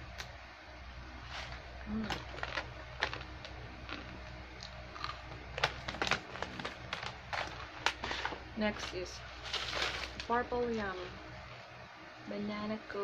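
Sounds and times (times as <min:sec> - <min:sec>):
plastic snack pouch crackling: 0:01.3 - 0:10.3.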